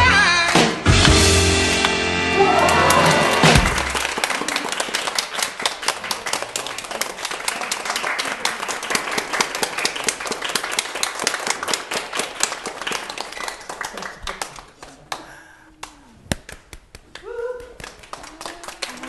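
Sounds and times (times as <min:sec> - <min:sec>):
audience applauding: 0:02.3 - 0:19.0.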